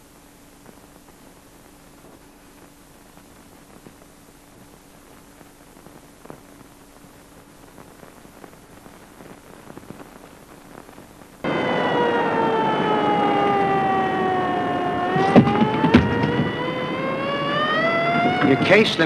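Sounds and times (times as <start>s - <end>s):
faint low hum: 0.0s - 19.0s
film soundtrack hiss and crackle: 0.0s - 19.0s
siren-like wail: 11.4s - 19.0s.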